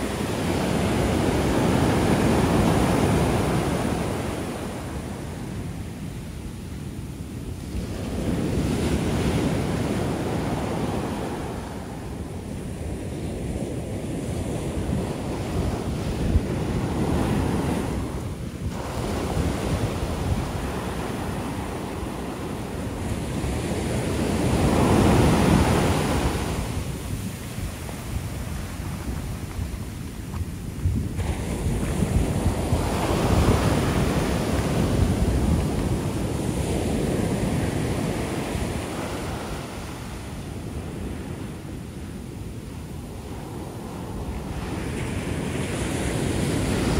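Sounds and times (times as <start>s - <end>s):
waves breaking: 0.0s - 6.2s, 7.4s - 46.9s
surf washing up sand: 0.0s - 46.9s.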